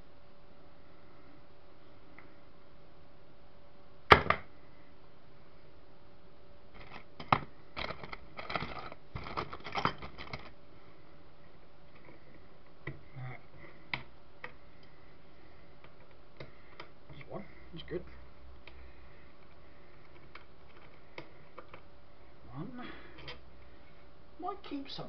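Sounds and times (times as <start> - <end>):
small tools clattering: 6.8 - 10.5.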